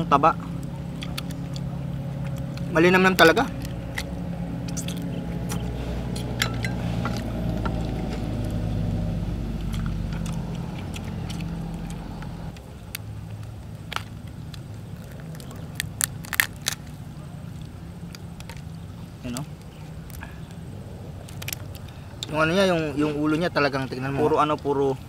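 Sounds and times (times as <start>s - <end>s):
low rumble: 0.0s - 18.0s
prawn shells cracking: 0.5s - 22.4s.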